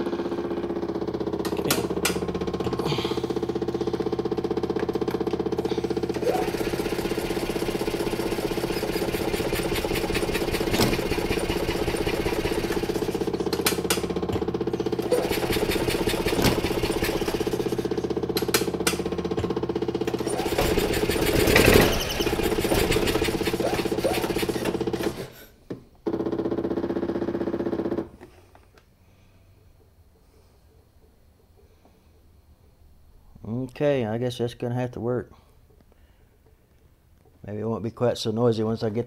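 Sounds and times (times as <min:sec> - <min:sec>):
electric fuel pump buzzing: 0:00.0 - 0:28.4.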